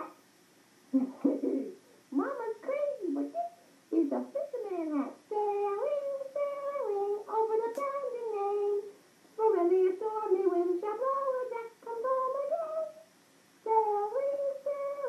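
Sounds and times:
woman singing wordless tune: 1.3 - 15.0.

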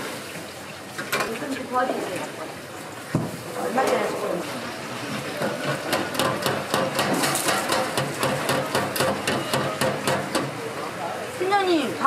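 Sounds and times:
busy kitchen clatter: 0.0 - 12.0
utensil knocking hard surface: 5.9 - 10.5.

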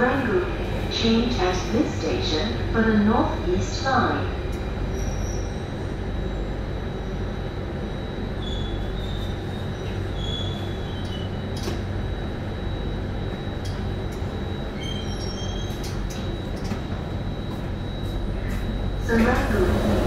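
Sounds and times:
faint wheel squeals: 8.4 - 11.3.

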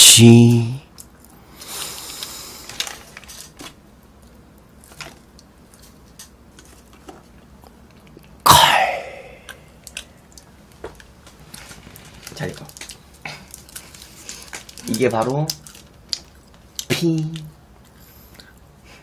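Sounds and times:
person coughing: 8.5 - 9.5
wrapper paper crinkling: 11.5 - 16.7.

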